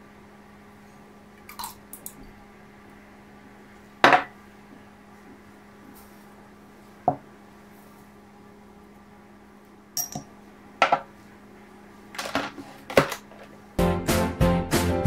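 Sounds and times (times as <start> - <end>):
mixer parts knocking and clattering: 12.2 - 13.6.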